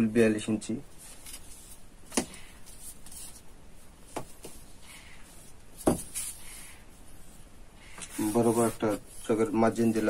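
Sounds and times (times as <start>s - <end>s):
cloth and measuring tape rustling: 0.9s - 10.0s.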